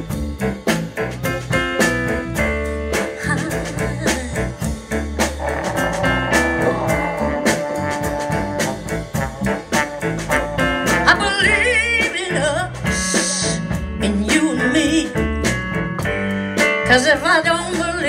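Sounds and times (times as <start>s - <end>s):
blues band playing: 0.0s - 18.0s
trombone line: 1.2s - 12.6s.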